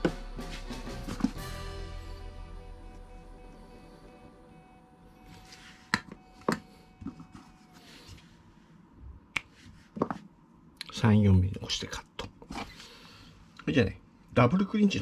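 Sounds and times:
background music: 0:00.0 - 0:05.2.

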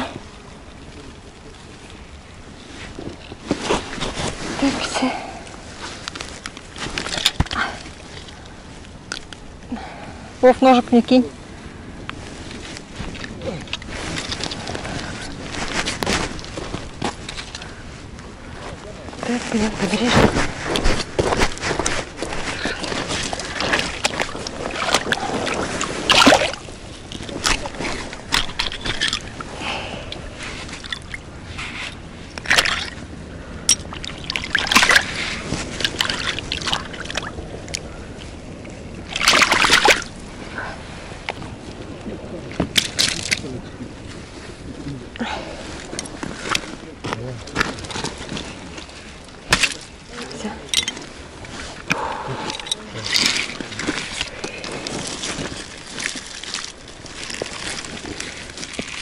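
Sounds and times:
river flowing: 0:04.5 - 0:41.3
handling fish on pebbles: 0:12.1 - 0:59.0
water splashing: 0:19.3 - 0:40.3, 0:47.5 - 0:59.0.

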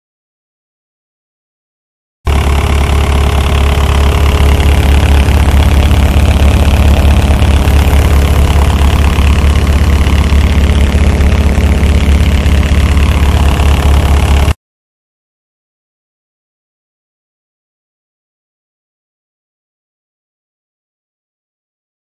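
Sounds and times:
diesel engine running: 0:02.3 - 0:14.6.

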